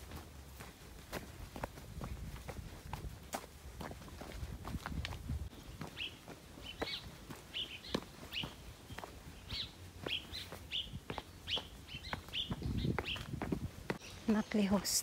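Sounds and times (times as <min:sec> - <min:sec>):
footsteps on a trail: 0:00.0 - 0:15.0
small bird chirping: 0:05.5 - 0:15.0.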